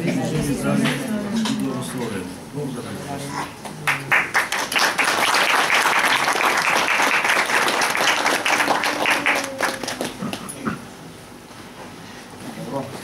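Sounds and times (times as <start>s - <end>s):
small group applauding: 3.6s - 10.8s.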